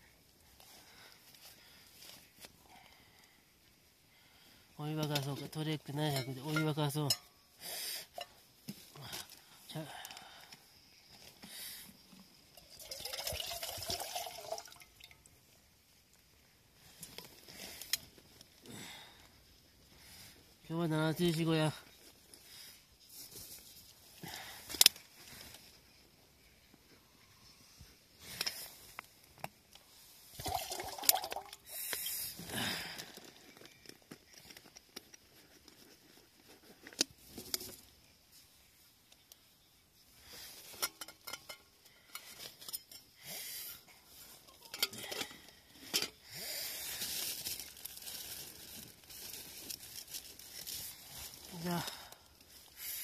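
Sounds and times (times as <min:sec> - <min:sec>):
water pouring into metal pot: 0:12.5 - 0:15.3, 0:30.4 - 0:31.6
cooking gear clicking and clinking: 0:40.7 - 0:43.2, 0:44.4 - 0:46.2.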